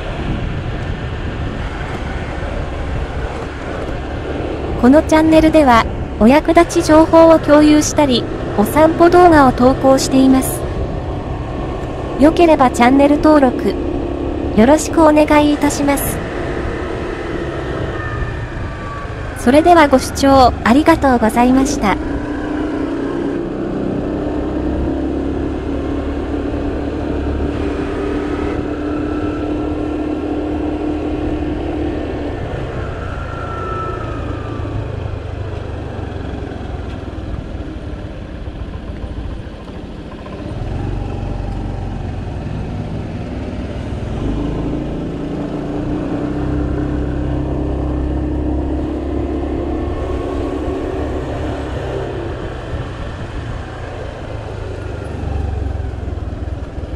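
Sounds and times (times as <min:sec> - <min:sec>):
motorcycle engine running: 0:35.0 - 0:56.9.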